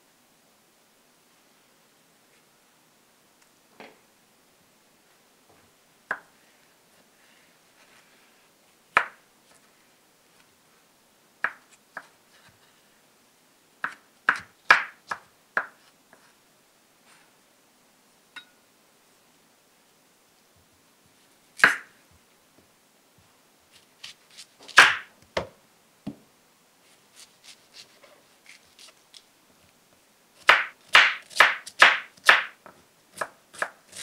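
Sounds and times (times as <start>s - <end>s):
knife chopping on wooden board: 30.4s - 32.6s.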